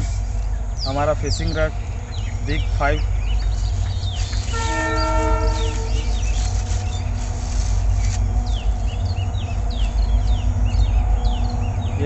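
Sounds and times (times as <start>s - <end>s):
birds chirping: 0.0s - 12.0s
steady low rumble: 0.0s - 12.0s.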